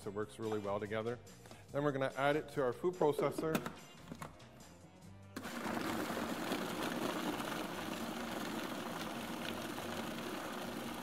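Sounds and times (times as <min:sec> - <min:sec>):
food processor running: 0:05.4 - 0:11.0.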